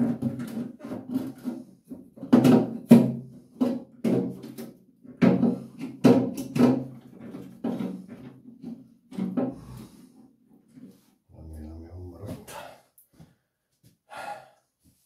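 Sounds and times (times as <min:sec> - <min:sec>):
plastic cistern scraping and knocking: 0:00.0 - 0:11.0.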